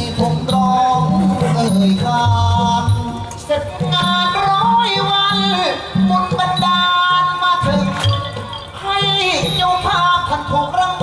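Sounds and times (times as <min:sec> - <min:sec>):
live band music: 0:00.0 - 0:11.0.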